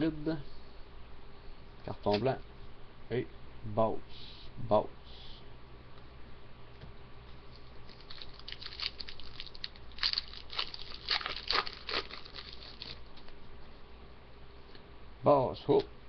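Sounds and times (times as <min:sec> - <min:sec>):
foil wrapper crinkling: 0:07.5 - 0:13.3.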